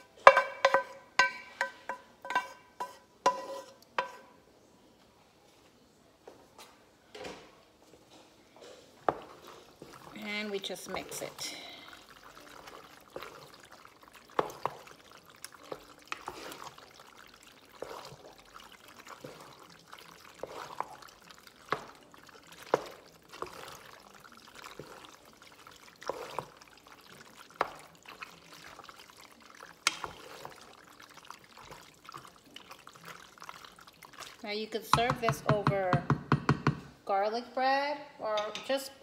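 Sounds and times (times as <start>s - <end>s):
spoon knocking pot: 0.2s - 4.3s, 34.9s - 36.9s, 38.3s - 38.8s
pasta squelching while stirred: 8.1s - 36.0s.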